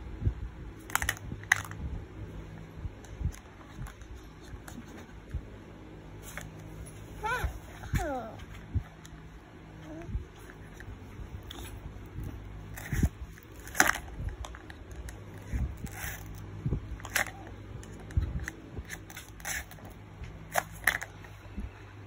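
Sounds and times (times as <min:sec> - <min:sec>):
plastic toys knocking and scraping: 0:10.4 - 0:16.4, 0:20.5 - 0:21.3.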